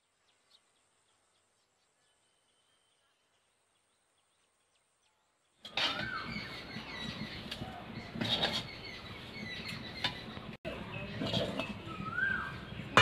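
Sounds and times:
bird chirps: 0.0s - 13.0s.

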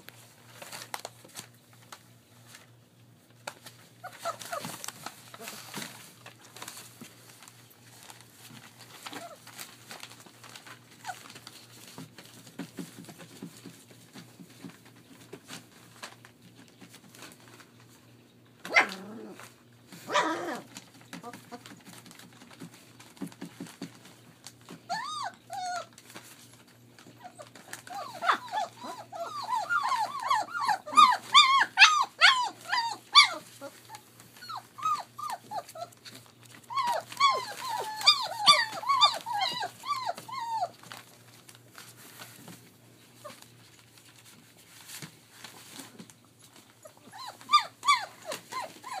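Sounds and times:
puppies yelping and whining: 4.0s - 5.8s, 24.7s - 26.2s, 27.0s - 41.1s, 46.6s - 49.0s.

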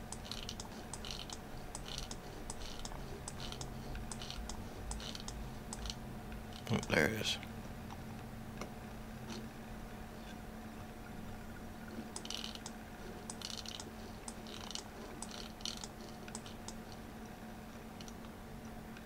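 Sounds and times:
computer mouse clicks: 0.0s - 6.0s, 12.1s - 17.0s.

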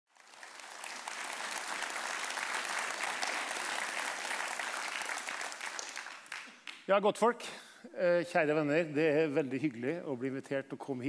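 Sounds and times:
audience applauding: 0.1s - 6.9s.

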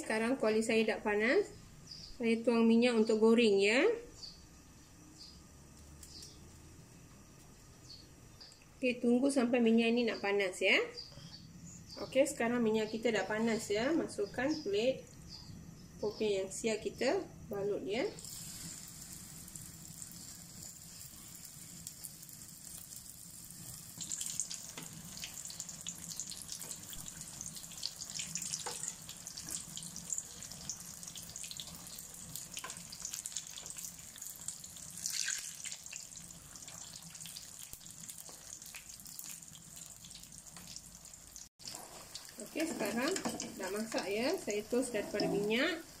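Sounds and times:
food deep-frying in oil: 16.2s - 46.0s.

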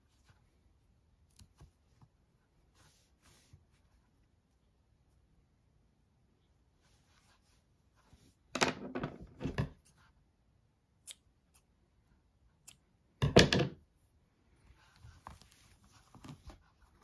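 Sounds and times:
scissors snipping yarn: 11.0s - 11.8s, 12.5s - 12.9s.

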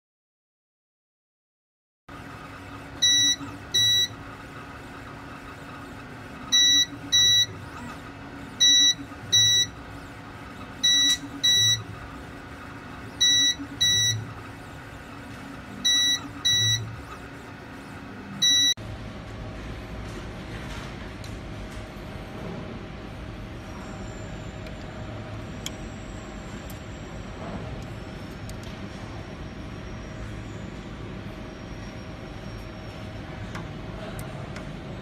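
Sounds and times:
fan hum: 2.1s - 35.0s
short high beeps: 3.0s - 4.1s, 6.5s - 7.5s, 8.6s - 9.7s, 10.8s - 11.8s, 13.2s - 14.2s, 15.8s - 16.9s, 18.4s - 18.8s.

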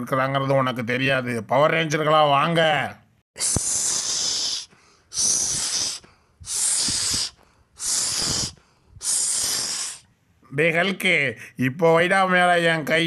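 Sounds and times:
hissing whoosh: 3.4s - 10.1s.

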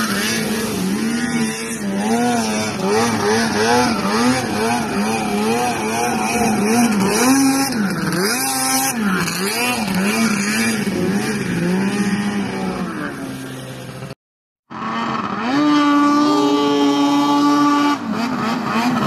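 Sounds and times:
snowmobile engine running hard: 0.0s - 19.0s.

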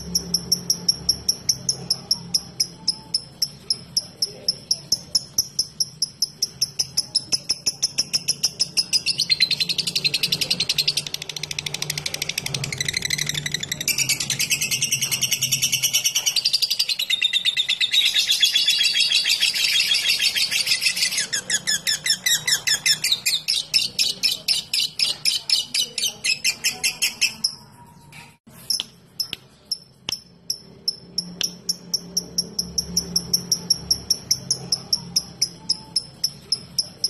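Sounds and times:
lovebird chattering trill: 0.0s - 27.8s, 28.7s - 37.0s
lovebird sharp ticking notes: 28.7s - 37.0s.

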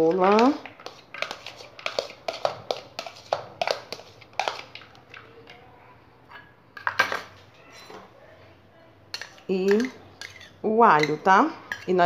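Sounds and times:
spoon scraping and tapping bowl: 0.0s - 5.6s, 9.1s - 12.0s
spoon clattering in metal bowl: 9.1s - 12.0s.

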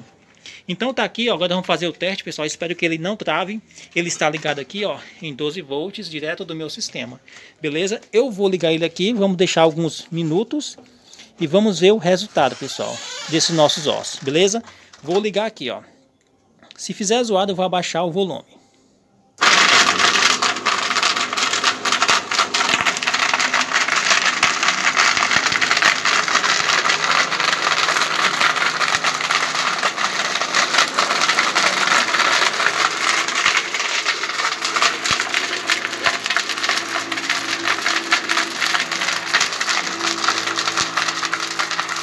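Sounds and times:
blender smashing bones: 19.4s - 42.0s
bone pieces rattling in plastic jar: 19.4s - 42.0s.

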